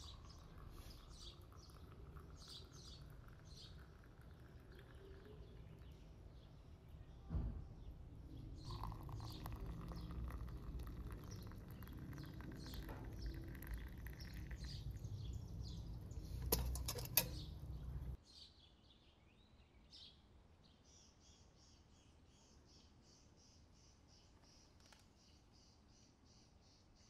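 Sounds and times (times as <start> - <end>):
tea pouring into glass cups: 0.0 - 6.6, 8.4 - 18.2
birds chirping: 0.0 - 27.0.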